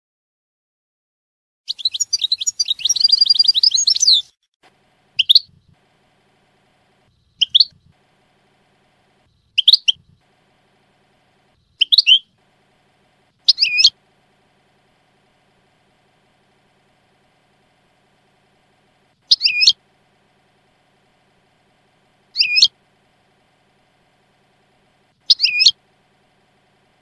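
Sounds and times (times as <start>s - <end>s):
finch twittering song: 1.7s - 4.3s, 5.1s - 5.8s, 7.1s - 8.0s, 9.4s - 10.3s, 11.5s - 12.4s, 13.4s - 14.0s, 19.2s - 19.8s, 22.3s - 22.8s, 25.2s - 25.8s
short high bird calls: 7.1s - 7.8s, 9.6s - 10.0s, 11.8s - 12.3s, 13.4s - 14.0s, 19.3s - 19.8s, 22.3s - 22.7s, 25.2s - 25.8s.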